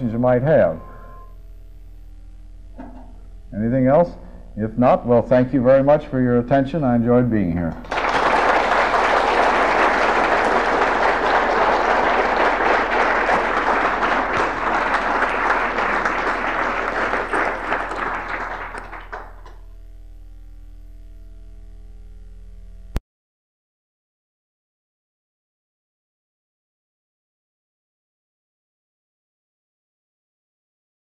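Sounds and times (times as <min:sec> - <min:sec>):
audience applauding: 0:07.8 - 0:19.6.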